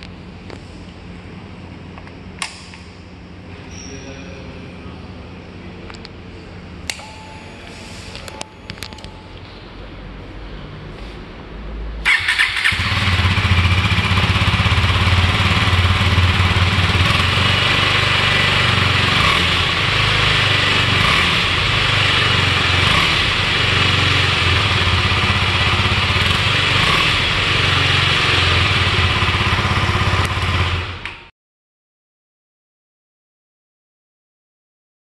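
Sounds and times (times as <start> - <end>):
motorcycle engine idling: 12.1 - 31.0.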